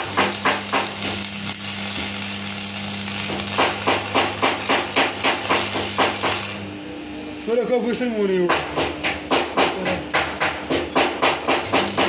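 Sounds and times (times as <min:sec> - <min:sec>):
welding arc crackling: 0:00.0 - 0:06.8, 0:11.4 - 0:12.0.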